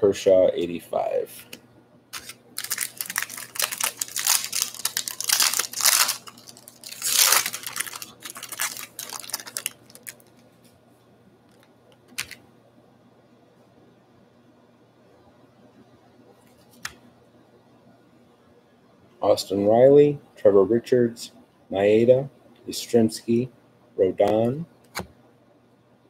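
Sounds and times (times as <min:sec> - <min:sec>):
card wrapper tearing and crinkling: 0:02.1 - 0:10.4.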